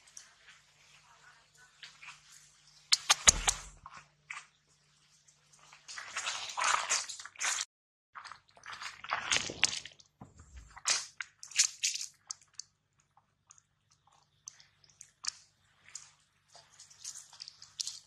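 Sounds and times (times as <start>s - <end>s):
monkey chewing and crunching food: 1.9s - 4.5s, 8.2s - 18.0s.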